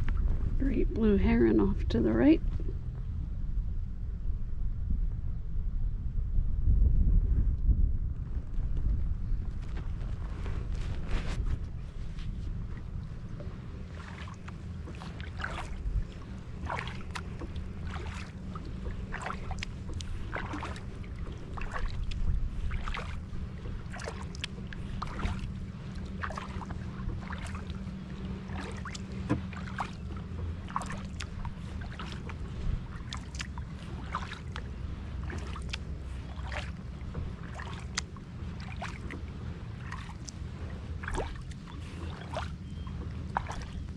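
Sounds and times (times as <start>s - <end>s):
steady low rumble: 0.0s - 43.9s
paddle splashing in water: 10.0s - 43.9s.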